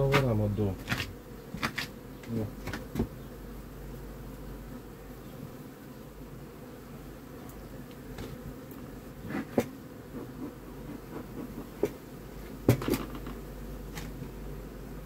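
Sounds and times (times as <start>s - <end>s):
hive tool knocking on frames: 0.0s - 3.2s, 9.2s - 14.4s
honeybees buzzing: 0.0s - 15.0s.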